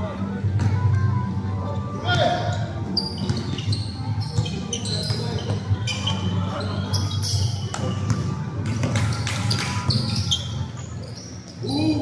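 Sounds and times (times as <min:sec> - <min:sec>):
sneaker squeaks: 0:01.7 - 0:12.0
basketball bouncing on court: 0:03.1 - 0:05.6, 0:07.7 - 0:10.5.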